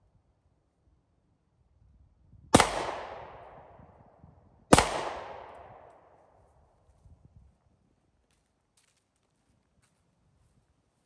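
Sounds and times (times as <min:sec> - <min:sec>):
pistol shots with echo: 0:02.5 - 0:03.8, 0:04.7 - 0:06.2.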